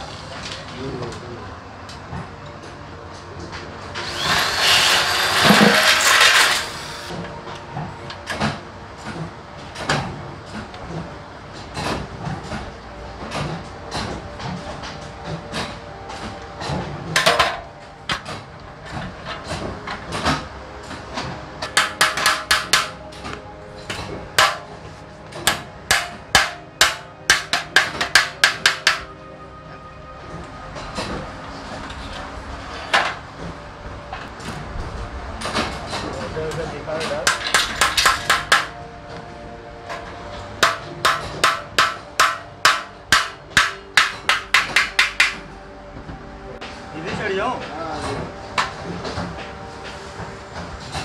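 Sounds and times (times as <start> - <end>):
electric drill boring into metal: 4.0 - 7.1
hammer striking metal punch: 21.6 - 23.0, 23.9 - 24.7, 25.4 - 29.1, 37.2 - 38.8, 40.6 - 45.5.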